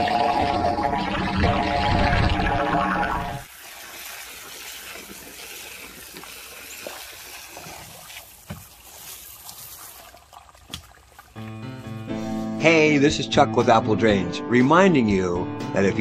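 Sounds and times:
water running from pipe: 3.4 - 11.5
background music: 11.4 - 16.0.

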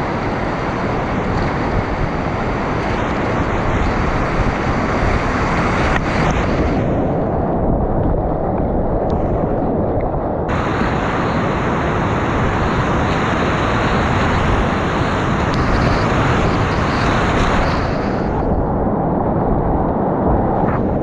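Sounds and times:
whitewater rapids roaring: 10.5 - 18.6.

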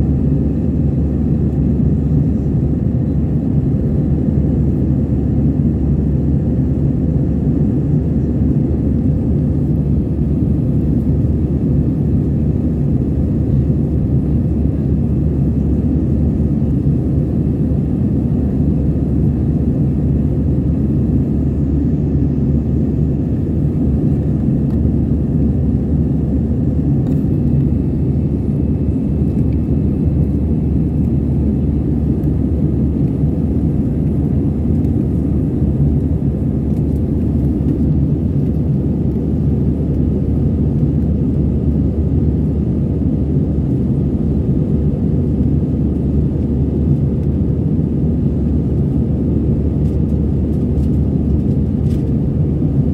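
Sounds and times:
jet engines rumbling: 0.0 - 52.9.

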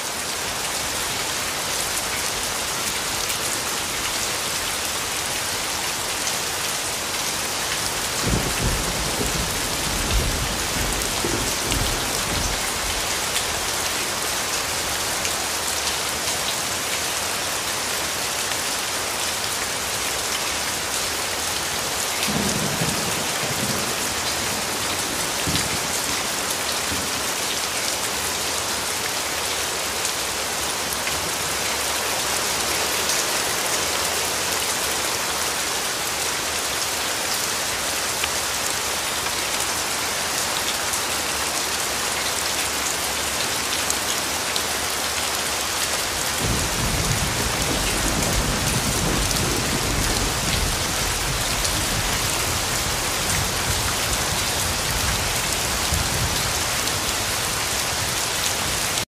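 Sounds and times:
steady rain falling: 0.0 - 59.0
low rumble of thunder: 8.2 - 13.0, 46.4 - 56.6.

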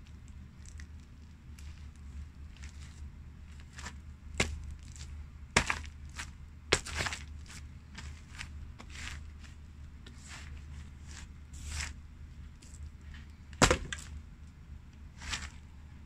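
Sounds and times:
steady low hum: 0.0 - 16.0
footsteps crunching pumpkin: 2.5 - 12.8, 15.2 - 15.7.

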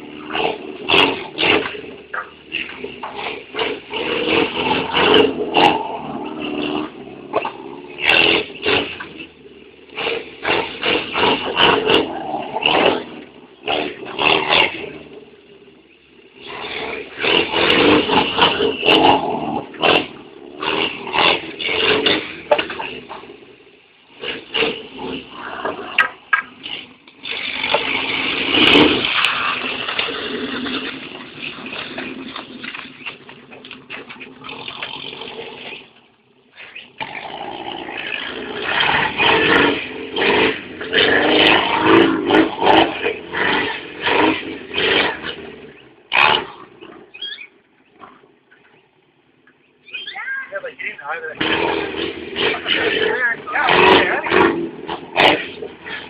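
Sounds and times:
car engine revving: 0.0 - 56.0.

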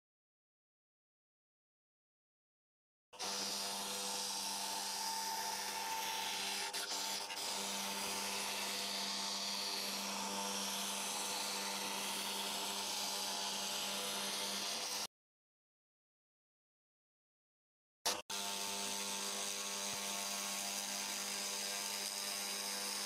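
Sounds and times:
hiss of cutting plywood: 3.2 - 15.1, 18.1 - 23.0
router spindle whine: 3.2 - 15.1, 18.1 - 23.0.

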